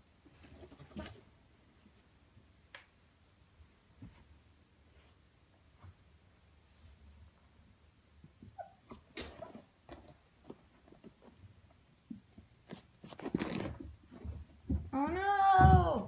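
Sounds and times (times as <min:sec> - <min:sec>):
paws scuffing on carpeted stairs: 0:09.9 - 0:14.9
person calling out: 0:15.0 - 0:16.0.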